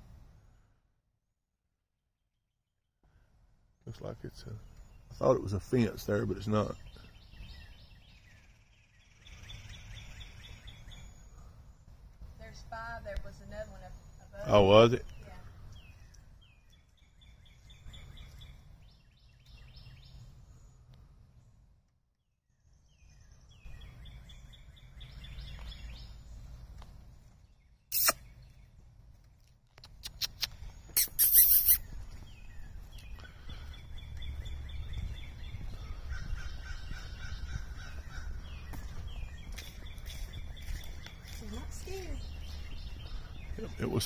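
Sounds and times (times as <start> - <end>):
sharp click: 27.9 - 28.2, 29.8 - 31.8
birds calling high notes: 30.5 - 44.0.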